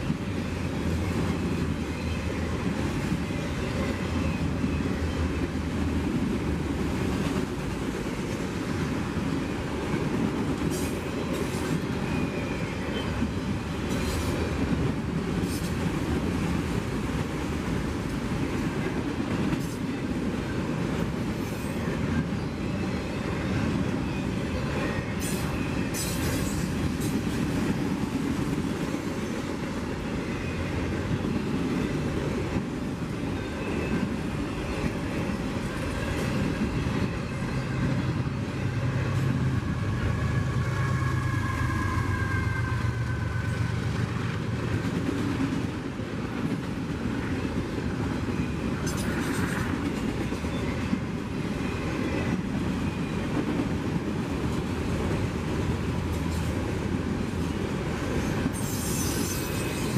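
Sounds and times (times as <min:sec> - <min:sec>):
train wheels rumbling on rail: 0:00.0 - 0:59.9
high wheel squeal: 0:58.5 - 0:59.9.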